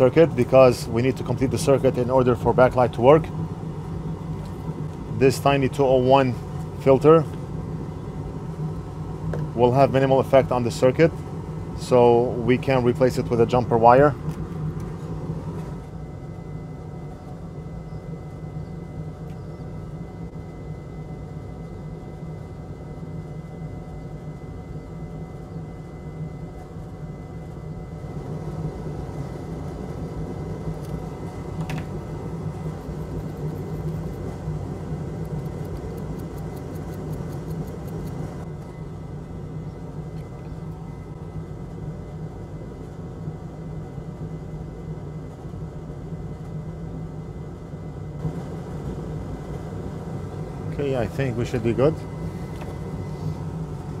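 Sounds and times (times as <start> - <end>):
fan whirring: 0.0 - 54.0
brush scrubbing circuit board: 32.7 - 34.2, 35.2 - 38.4
faint fast ticking: 35.2 - 38.4.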